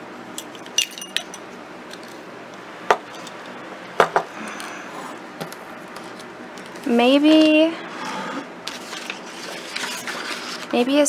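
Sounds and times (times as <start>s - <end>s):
objects knocking on table: 4.0s - 4.3s.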